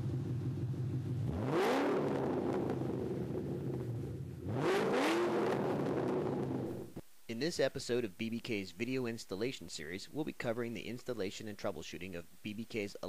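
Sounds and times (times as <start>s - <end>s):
car engine idling and revving: 0.0s - 7.0s.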